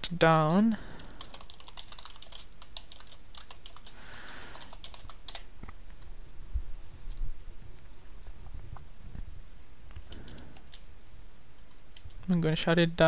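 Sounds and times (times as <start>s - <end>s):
computer keyboard typing: 1.0s - 5.5s, 10.0s - 10.8s, 11.6s - 12.4s.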